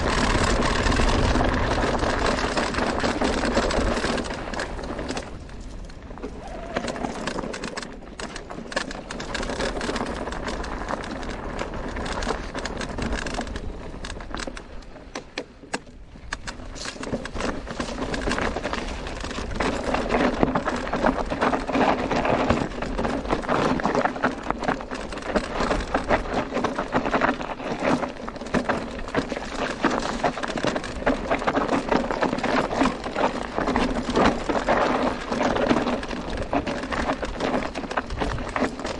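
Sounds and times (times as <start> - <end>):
bike chain and frame clattering: 0.0 - 15.4
tyres on dirt and stones: 0.0 - 38.9.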